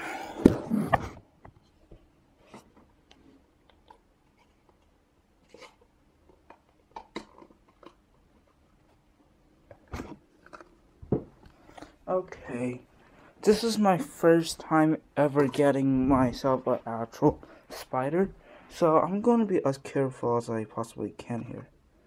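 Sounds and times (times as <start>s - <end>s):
faint crinkles and taps: 1.4s - 9.0s.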